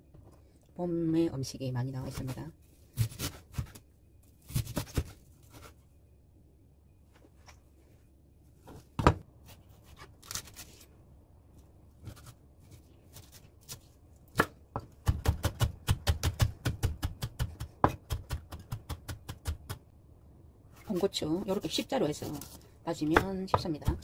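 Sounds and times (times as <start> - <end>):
knife chopping on wooden board: 14.3 - 19.8, 23.0 - 24.0.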